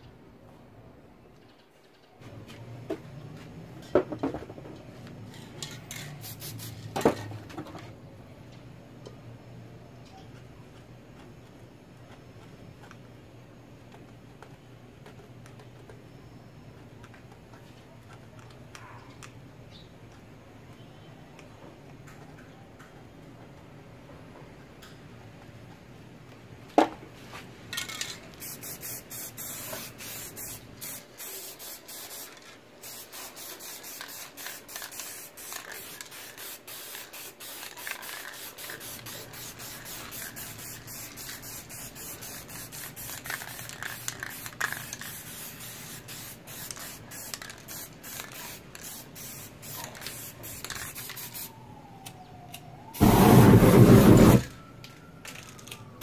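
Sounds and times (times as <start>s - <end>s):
spray can hissing: 5.9s - 7.0s, 28.4s - 51.5s, 53.0s - 54.5s
whoosh of flame: 53.0s - 54.5s.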